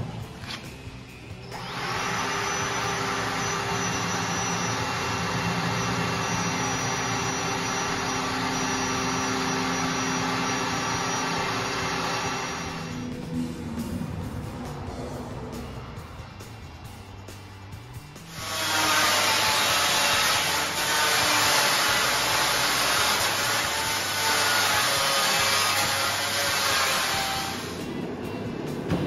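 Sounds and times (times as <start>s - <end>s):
cordless drill drilling metal: 1.4s - 13.0s, 18.3s - 27.8s.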